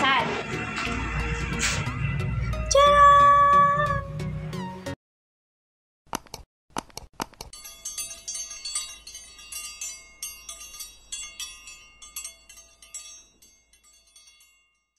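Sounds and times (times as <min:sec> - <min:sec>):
jangle of small bell chimes: 0:07.6 - 0:14.9.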